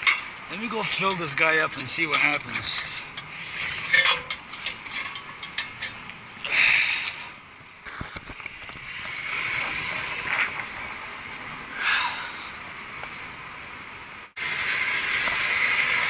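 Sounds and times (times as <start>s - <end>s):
footsteps on steel ladder: 0.0s - 3.3s
steady hiss: 5.6s - 16.0s.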